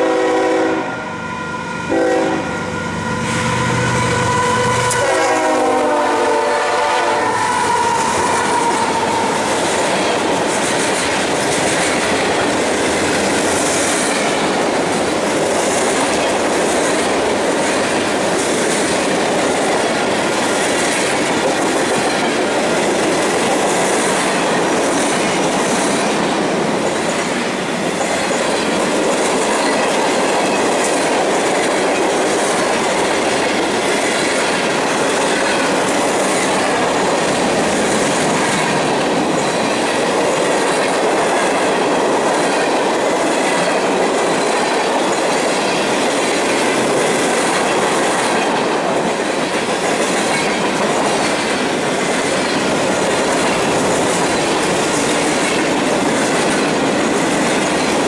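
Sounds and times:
train horn: 0.0s - 9.6s
wheels clacking over rail joints: 4.8s - 58.0s.

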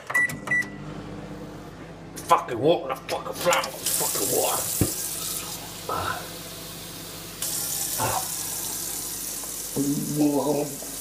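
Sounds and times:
tap water running into sink: 3.5s - 5.8s, 6.6s - 11.0s.

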